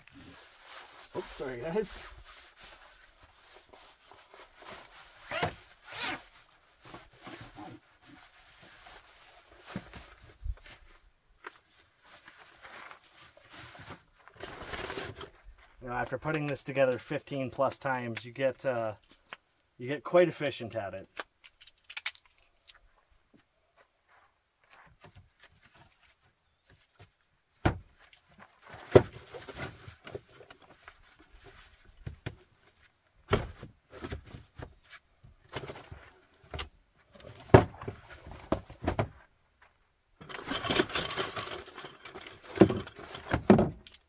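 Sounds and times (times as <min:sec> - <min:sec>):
cot frame rattling: 0:40.2 - 0:43.8.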